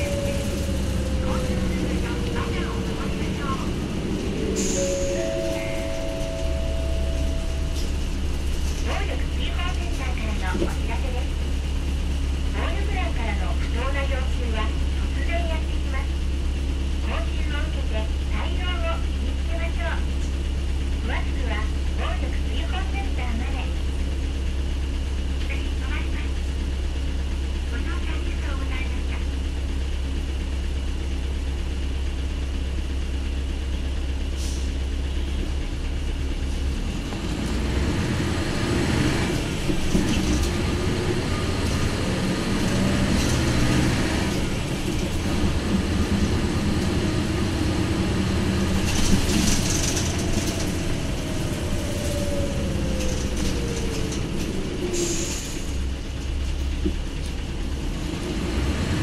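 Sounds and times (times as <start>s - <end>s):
engine whine: 0.0s - 21.6s, 31.8s - 59.0s
bus diesel engine: 0.0s - 59.0s.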